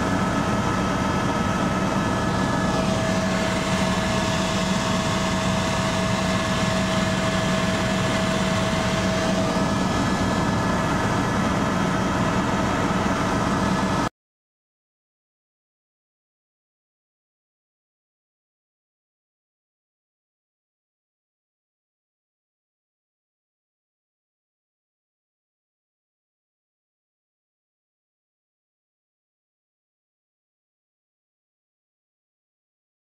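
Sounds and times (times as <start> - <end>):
helicopter cabin engine and rotors: 0.0 - 14.1.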